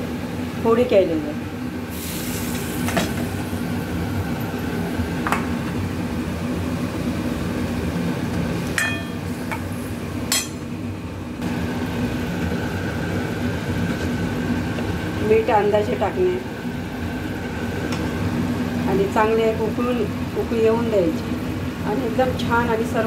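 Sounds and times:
steady low hum: 0.0s - 23.0s
spoon clinking in metal pan: 8.8s - 9.2s, 10.3s - 10.6s.

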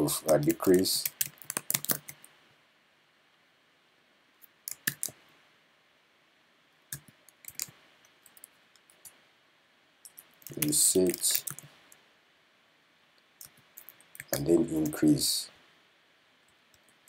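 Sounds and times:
keyboard typing: 0.2s - 2.3s, 4.6s - 5.2s, 6.9s - 9.1s, 10.1s - 11.7s, 13.4s - 15.1s.

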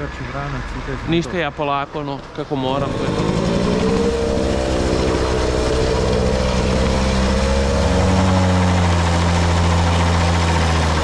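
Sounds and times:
deeper engine hum: 0.0s - 11.0s
road and wind rush: 2.5s - 9.4s
moped engine running: 2.6s - 11.0s.

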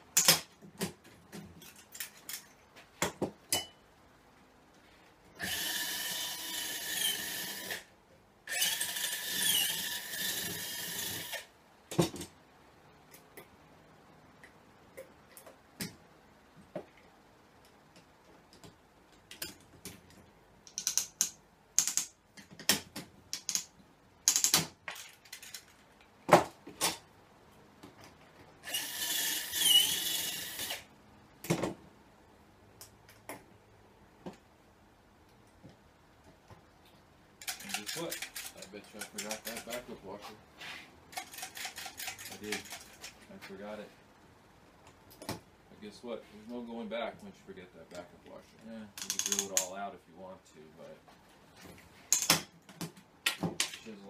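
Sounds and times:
power drill drilling metal: 5.4s - 7.8s, 8.5s - 11.5s, 28.6s - 30.8s
hand rivet gun clicks: 20.7s - 24.7s.

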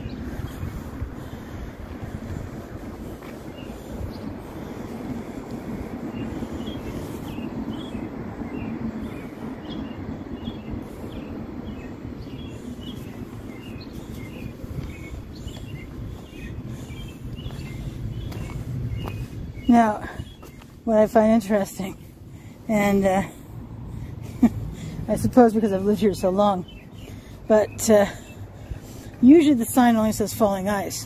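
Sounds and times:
high bird chirps: 5.4s - 20.8s.

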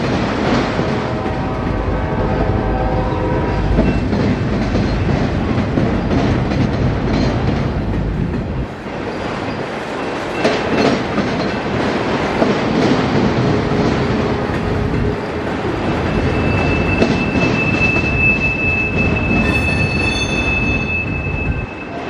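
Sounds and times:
train wheels clacking over rail joints: 0.0s - 21.7s
high-pitched wheel squeal: 15.8s - 22.0s.

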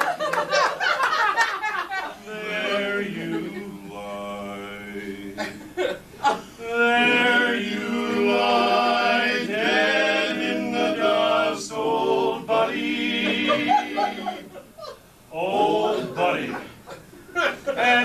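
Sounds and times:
male quartet singing a cappella: 2.1s - 14.7s, 15.3s - 18.0s.

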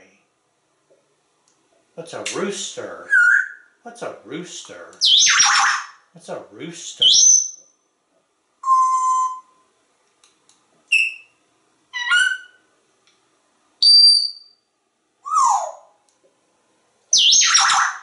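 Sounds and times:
parrot whistles and calls: 3.1s - 3.8s, 5.0s - 6.0s, 7.0s - 7.7s, 8.6s - 9.6s, 10.9s - 12.7s, 13.8s - 14.6s, 15.2s - 15.9s, 17.1s - 18.0s.

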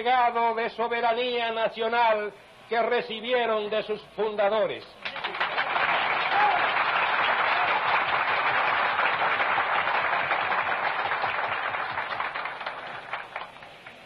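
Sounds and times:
large crowd applauding: 5.0s - 14.0s.

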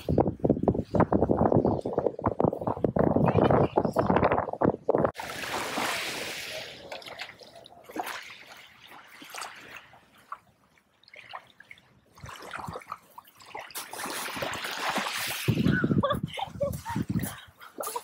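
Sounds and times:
waves washing over pebbles: 5.2s - 7.4s.

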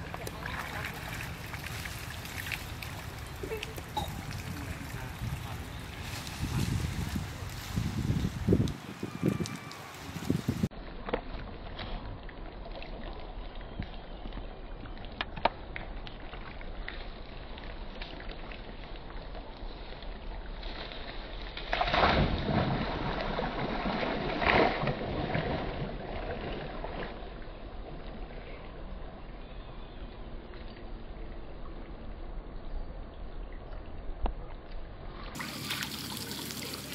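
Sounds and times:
steady outdoor hiss: 0.0s - 11.7s, 27.5s - 36.9s
water sloshing and splashing: 0.0s - 29.2s, 35.0s - 36.9s.

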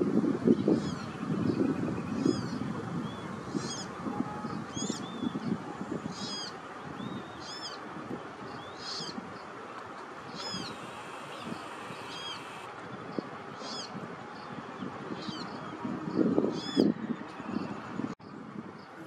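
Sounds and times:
bird chick peeping: 10.4s - 12.7s.

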